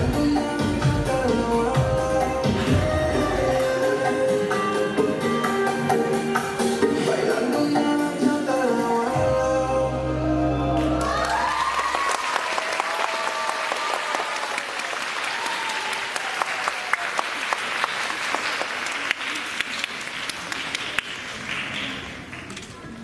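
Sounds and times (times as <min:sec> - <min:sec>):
music: 0:00.0 - 0:12.0
people cheering: 0:10.8 - 0:17.8
audience applauding: 0:10.9 - 0:22.6.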